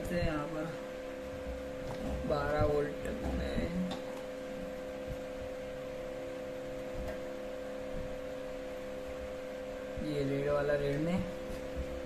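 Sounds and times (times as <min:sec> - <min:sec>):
electrical hum with high tone: 0:00.0 - 0:12.0.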